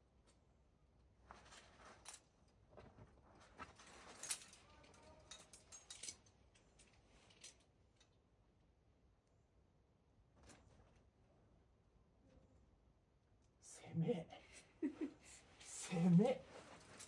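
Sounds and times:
climbing hardware clinking: 0:03.8 - 0:08.1.

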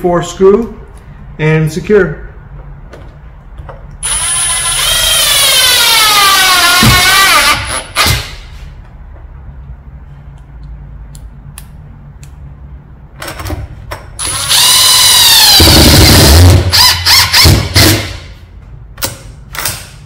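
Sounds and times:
drill motor whining: 0:04.0 - 0:08.2, 0:14.2 - 0:17.9.

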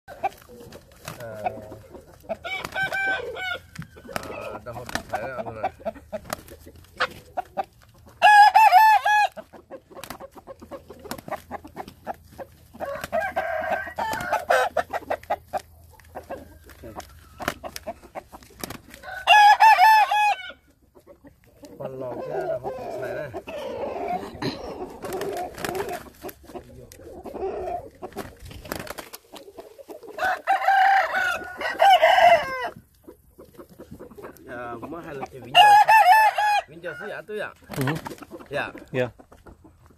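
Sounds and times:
wing flaps and scuffling: 0:00.1 - 0:08.2, 0:09.8 - 0:19.1, 0:24.9 - 0:27.1, 0:27.8 - 0:30.2, 0:37.6 - 0:38.9
chickens clucking: 0:00.1 - 0:39.9
rooster crowing: 0:02.4 - 0:04.5, 0:08.2 - 0:09.4, 0:12.8 - 0:14.8, 0:19.0 - 0:20.6, 0:30.2 - 0:32.8, 0:35.5 - 0:37.2.

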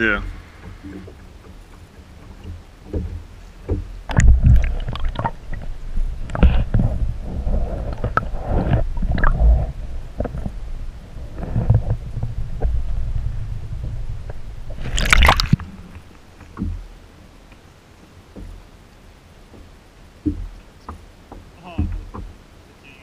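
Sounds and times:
low rumbling: 0:00.0 - 0:17.5
water slapping kayak: 0:00.0 - 0:23.0
knocks: 0:00.6 - 0:04.6, 0:19.5 - 0:22.4.

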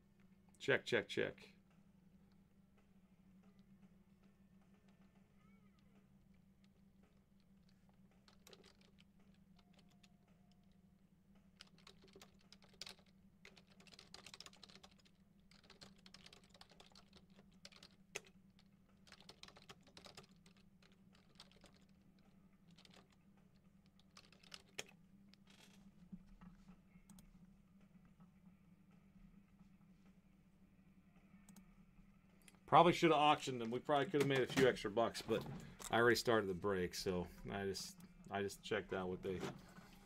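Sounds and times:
low steady hum: 0:00.0 - 0:40.0
faint keyboard typing: 0:01.4 - 0:29.9, 0:31.1 - 0:31.8.

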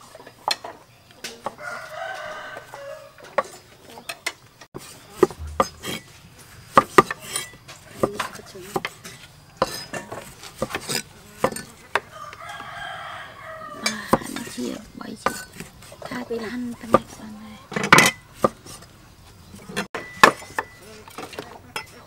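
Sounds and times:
rooster crowing: 0:01.6 - 0:03.4, 0:12.1 - 0:14.0.

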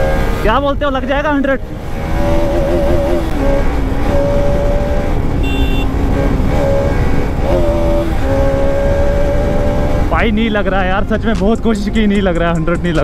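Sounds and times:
motorcycle engine high revs: 0:00.0 - 0:00.6, 0:01.6 - 0:10.2.

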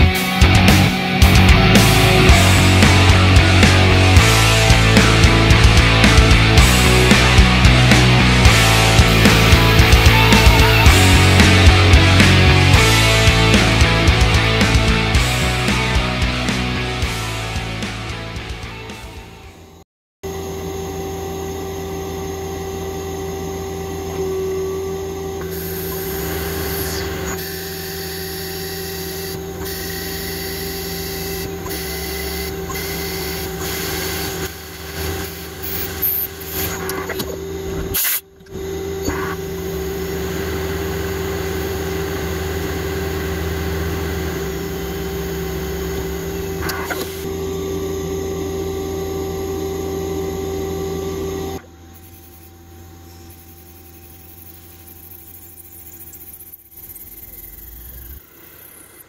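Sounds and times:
lathe spindle whine: 0:19.6 - 0:59.0
metal cutting noises: 0:23.4 - 0:59.0.

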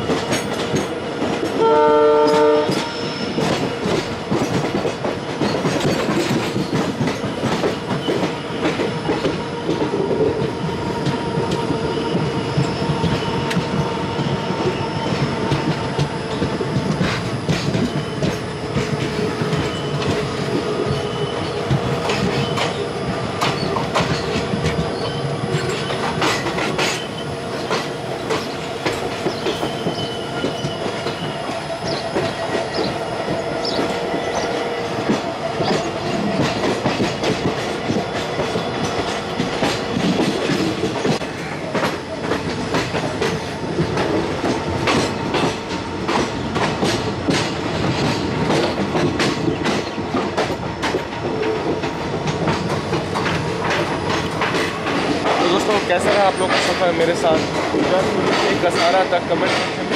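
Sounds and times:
train wheels rumbling on rail: 0:00.0 - 0:59.9
wheels clacking over rail joints: 0:00.0 - 0:59.9.

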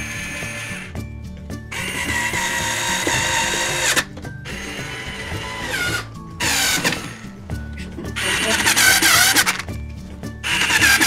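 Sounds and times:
power drill whining: 0:00.0 - 0:01.0, 0:01.7 - 0:07.4, 0:08.2 - 0:09.7, 0:10.4 - 0:11.0
background music with steady beat: 0:00.0 - 0:11.0.

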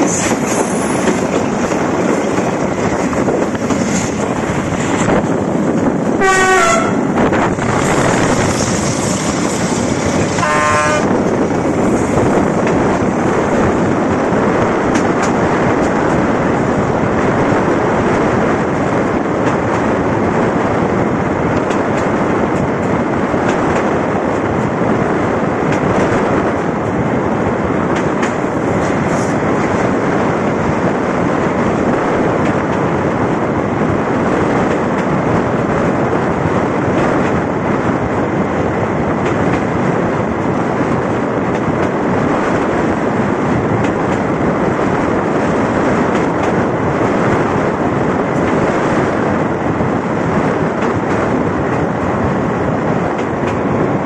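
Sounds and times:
freight train rolling with wheel clatter: 0:00.0 - 0:54.0
train horn blasts: 0:06.2 - 0:07.1, 0:10.4 - 0:11.2.

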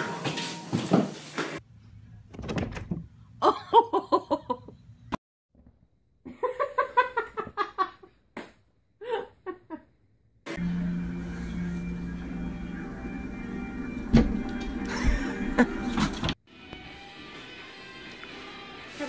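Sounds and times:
person laughing: 0:03.4 - 0:04.8, 0:09.0 - 0:09.9, 0:14.9 - 0:16.2.

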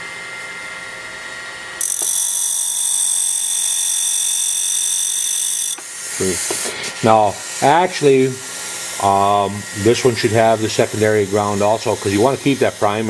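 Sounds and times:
end mill grinder hissing: 0:01.8 - 0:13.0.

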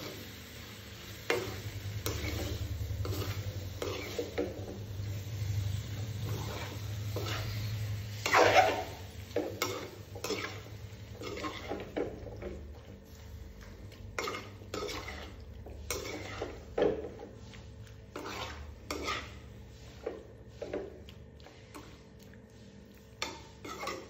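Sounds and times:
food sizzling in oil: 0:00.0 - 0:22.1, 0:23.2 - 0:24.0
spoon scraping metal pan: 0:01.3 - 0:04.8, 0:06.2 - 0:12.6, 0:14.2 - 0:17.2, 0:18.1 - 0:20.9, 0:23.2 - 0:24.0.

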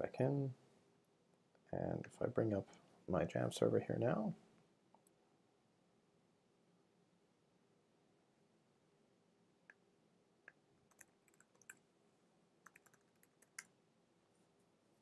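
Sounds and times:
computer keyboard typing: 0:10.9 - 0:11.8, 0:12.6 - 0:13.7.

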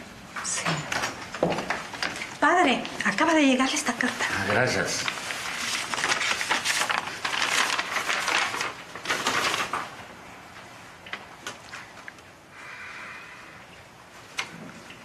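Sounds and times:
paper rustling and crinkling: 0:03.0 - 0:10.2.

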